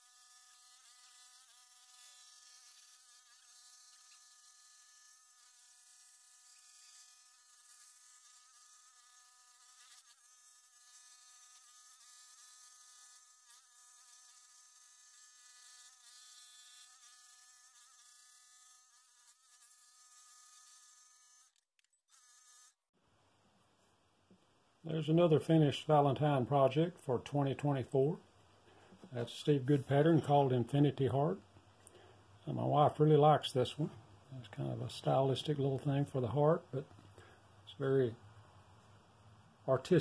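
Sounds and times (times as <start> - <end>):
scroll saw buzzing: 0.0 - 22.8.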